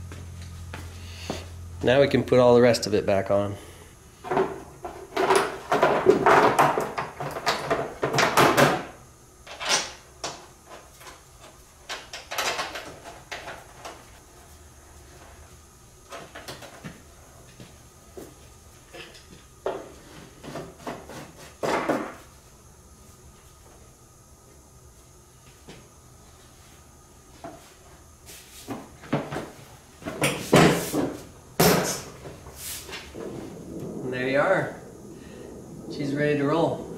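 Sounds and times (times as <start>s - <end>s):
parts knocking and rattling: 4.2s - 8.9s, 9.5s - 14.0s.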